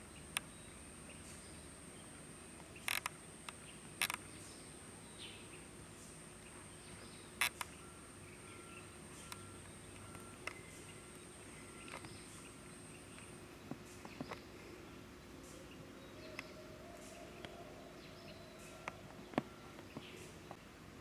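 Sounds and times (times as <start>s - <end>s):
sharp clicks: 2.8s - 4.2s.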